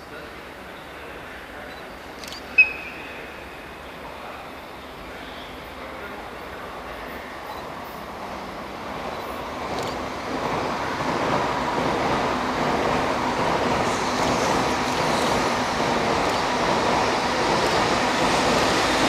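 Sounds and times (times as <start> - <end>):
electric locomotive running: 2.4 - 19.0.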